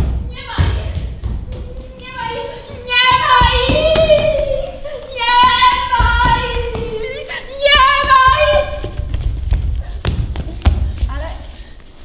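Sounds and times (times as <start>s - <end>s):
knocks: 0.0s - 4.5s.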